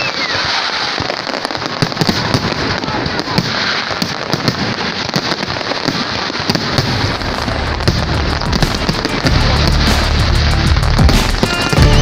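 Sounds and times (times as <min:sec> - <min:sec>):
fireworks bangs and crackles: 0:00.0 - 0:12.0
low rumble: 0:07.0 - 0:12.0.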